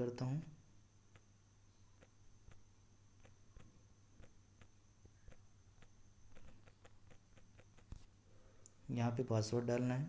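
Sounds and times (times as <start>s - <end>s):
low steady hum: 0.0s - 10.0s
fingers tapping on phone screen: 2.0s - 2.6s, 3.2s - 8.0s.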